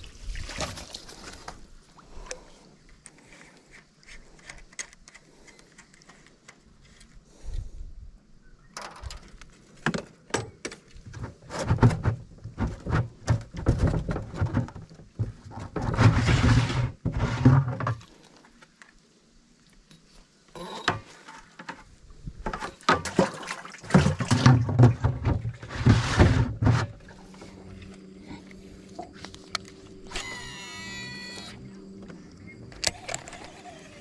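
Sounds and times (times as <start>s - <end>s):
water splashing: 0.0s - 1.5s, 22.7s - 25.6s.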